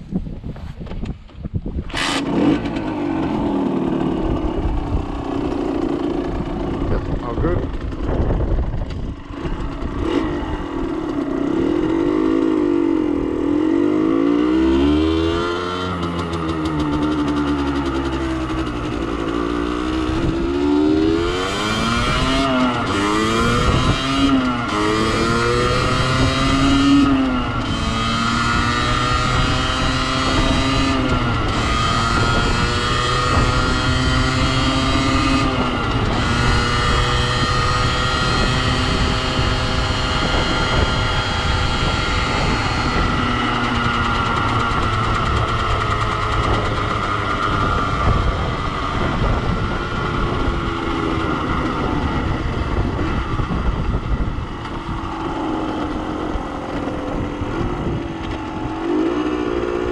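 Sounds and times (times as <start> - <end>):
wind rush over microphone: 0.0 - 59.9
two-stroke engine revving: 1.9 - 59.9.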